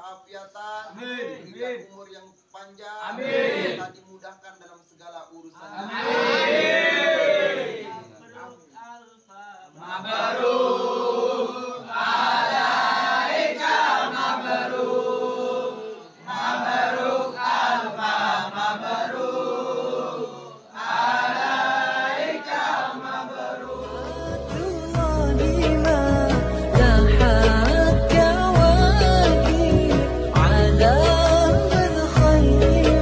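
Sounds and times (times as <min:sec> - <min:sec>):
men chanting together: 0:00.8 - 0:01.8, 0:03.0 - 0:03.9, 0:05.6 - 0:08.6, 0:09.7 - 0:24.6
backing music with deep bass: 0:23.7 - 0:33.0.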